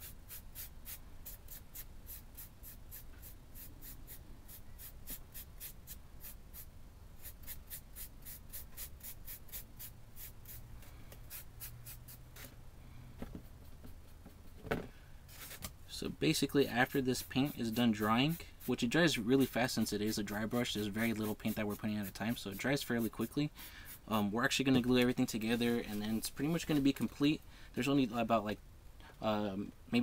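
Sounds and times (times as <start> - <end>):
paintbrush scratching on brick: 0.0 - 10.6, 16.4 - 26.8.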